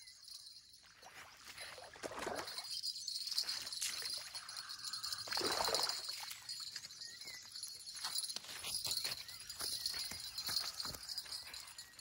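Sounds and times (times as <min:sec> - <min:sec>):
fish thrashing and splashing: 0:03.7 - 0:06.6.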